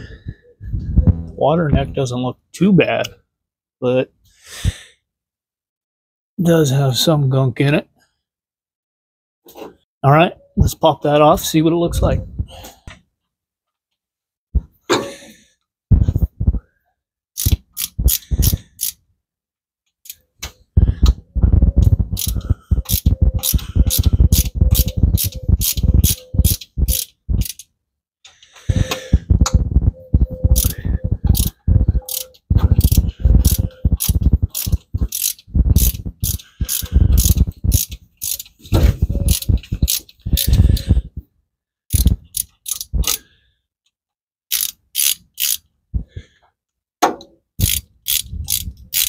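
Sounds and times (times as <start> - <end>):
ratchet wrench clicking: 17.4 - 19.0, 22.2 - 27.7, 30.6 - 38.6, 39.2 - 40.8, 41.9 - 43.2, 44.5 - 45.6, 47.6 - 49.0.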